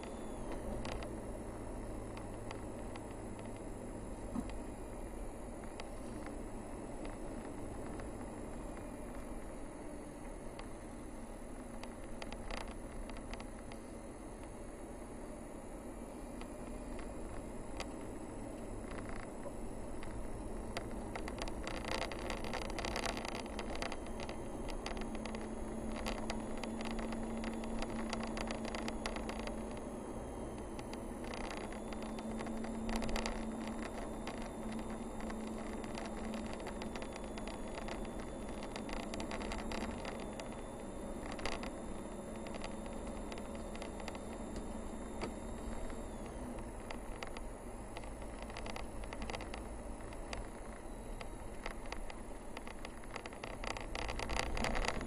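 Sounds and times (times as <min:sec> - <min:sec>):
small clicks and rattles: 0:00.0 - 0:01.2, 0:02.0 - 0:03.7, 0:11.6 - 0:13.9, 0:16.4 - 0:29.9, 0:30.6 - 0:55.0
car engine and tyre noise: 0:00.0 - 0:55.0.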